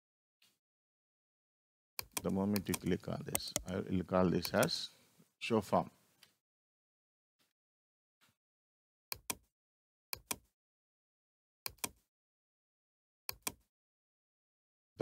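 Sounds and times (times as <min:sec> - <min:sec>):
computer mouse clicking: 0:02.0 - 0:03.8, 0:04.4 - 0:04.7, 0:09.1 - 0:09.5, 0:10.2 - 0:10.5, 0:11.7 - 0:12.0, 0:13.3 - 0:13.7.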